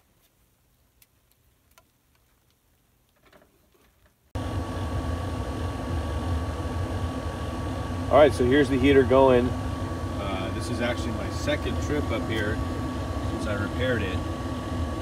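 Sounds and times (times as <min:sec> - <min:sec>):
furnace blower hum with whine: 0:04.4 - 0:15.0.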